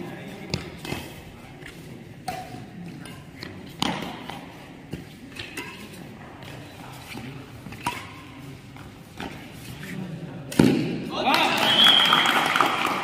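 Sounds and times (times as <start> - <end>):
racket hitting shuttlecock: 0.4 - 6.0, 7.2 - 9.4, 10.5 - 11.1.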